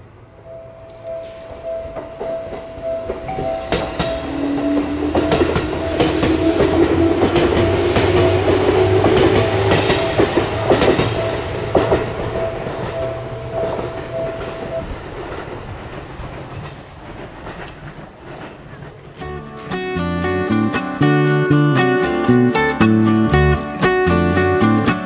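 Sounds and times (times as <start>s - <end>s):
crossing alarm dinging: 0.0s - 16.7s
traction motors whining: 0.7s - 16.4s
train wheels clacking: 0.7s - 25.0s.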